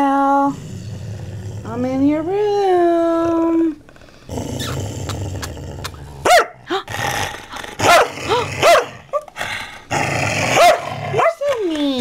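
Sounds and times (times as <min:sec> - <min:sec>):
dog growling low: 0:00.3 - 0:02.0, 0:03.0 - 0:11.2
dog snarling barks: 0:04.5 - 0:09.2, 0:09.9 - 0:11.6.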